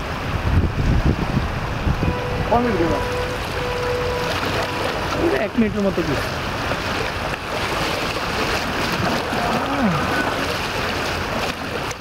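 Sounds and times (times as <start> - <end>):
choppy river water rushing: 0.0 - 12.0
person calling out: 9.4 - 10.4.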